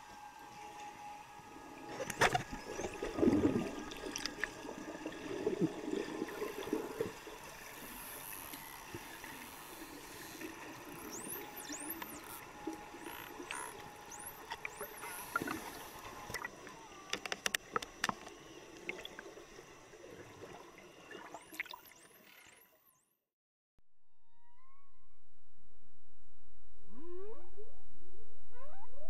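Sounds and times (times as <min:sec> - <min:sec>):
bubbly water gurgling: 0:02.2 - 0:16.6, 0:17.6 - 0:22.2.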